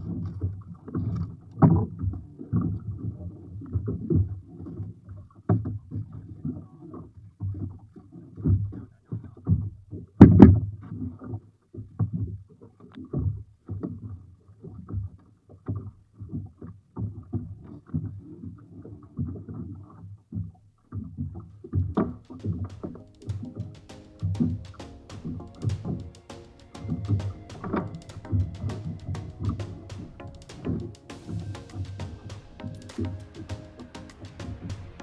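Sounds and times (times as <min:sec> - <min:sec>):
water slapping against hull: 0:20.4 - 0:35.0.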